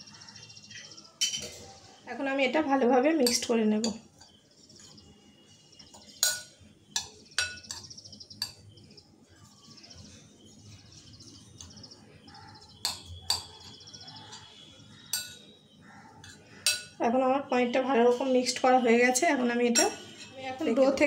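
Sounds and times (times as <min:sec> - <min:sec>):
birds chirping: 0:00.0 - 0:21.0
metal spoon clinking glass bowl: 0:00.8 - 0:01.7, 0:03.2 - 0:05.0, 0:05.8 - 0:08.7, 0:12.6 - 0:15.5, 0:16.2 - 0:17.0, 0:19.7 - 0:20.3.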